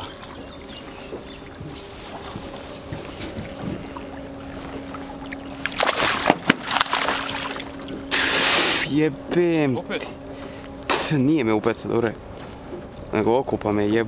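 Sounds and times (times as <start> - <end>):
faint steady hum: 0.0 - 14.0
low water noise: 0.0 - 14.0
fish splashing at surface: 4.7 - 8.1.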